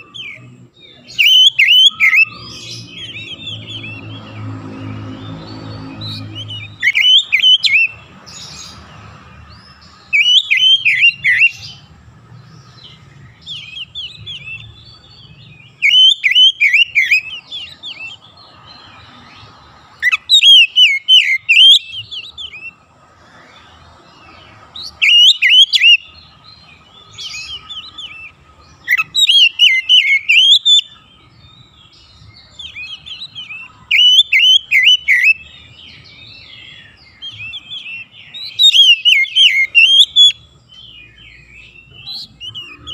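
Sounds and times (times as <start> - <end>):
bird singing whistled phrases: 0.0 - 4.4, 5.3 - 8.0, 10.1 - 11.8, 13.3 - 18.2, 20.0 - 22.8, 24.8 - 26.2, 27.0 - 42.9.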